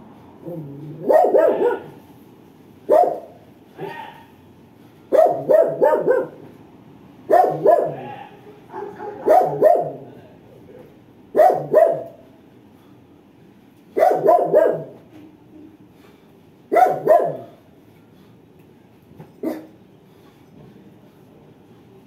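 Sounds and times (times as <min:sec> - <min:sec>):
dog barking: 0:00.8 - 0:02.1, 0:02.9 - 0:04.4, 0:05.1 - 0:06.5, 0:07.3 - 0:10.1, 0:11.3 - 0:12.2, 0:14.0 - 0:15.0, 0:16.7 - 0:17.6, 0:19.4 - 0:19.8.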